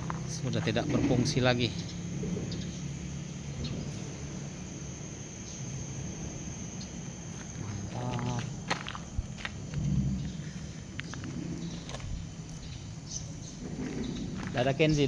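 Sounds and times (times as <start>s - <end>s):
insects droning: 0.0s - 15.0s
low rumble: 8.4s - 15.0s.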